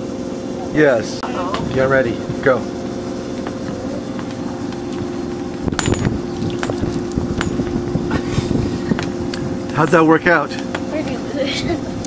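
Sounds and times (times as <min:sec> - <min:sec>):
electric boat humming: 0:00.0 - 0:12.0.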